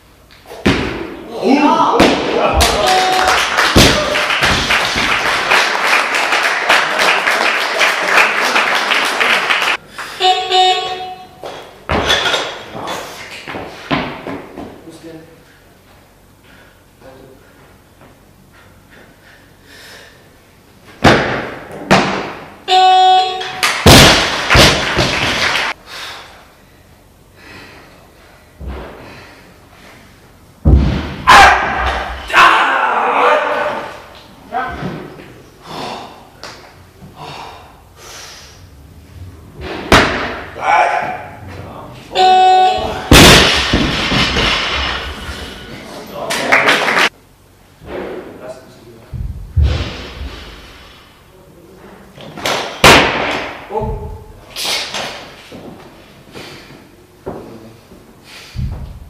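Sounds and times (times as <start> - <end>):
audience clapping: 2.6 - 10.2, 23.6 - 25.8, 46.3 - 47.1
barbell dropped and bouncing: 11.4 - 12.7, 42.9 - 45.2
short electronic beep: 22.7 - 23.6, 42.2 - 43.0.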